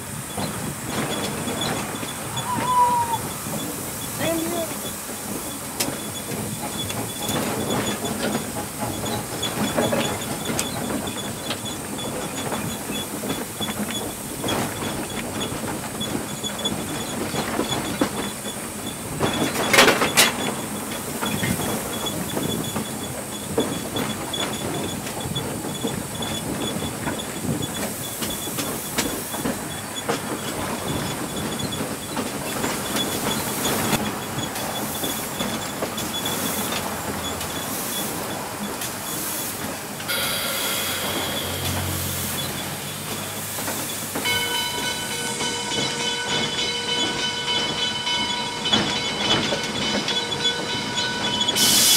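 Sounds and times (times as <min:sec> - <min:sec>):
steam locomotive rumble and hiss: 0:00.0 - 0:51.9
loud burst of noise: 0:40.1 - 0:43.7.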